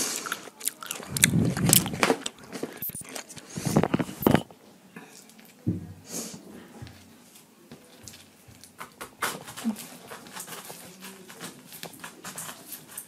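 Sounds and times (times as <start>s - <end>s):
knife cutting pineapple rind: 8.6s - 13.0s.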